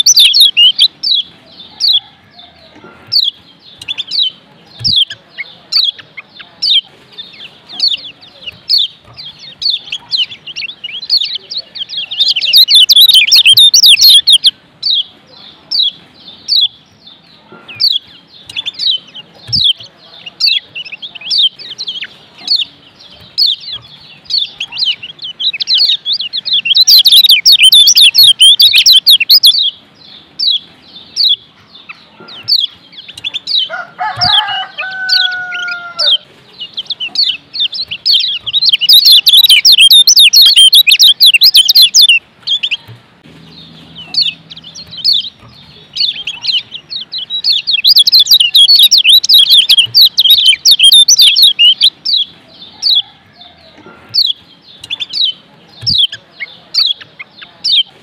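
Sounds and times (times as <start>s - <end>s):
bird chirping and twittering: 0.0s - 58.0s
rooster crowing: 1.4s - 3.0s, 33.6s - 36.3s, 52.5s - 54.3s.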